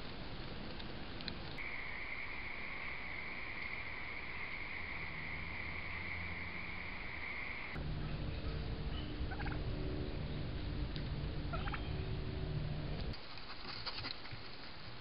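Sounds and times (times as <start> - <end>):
steady low rumble: 0.0 - 13.2
wild turkeys calling: 1.5 - 9.7, 11.5 - 12.0.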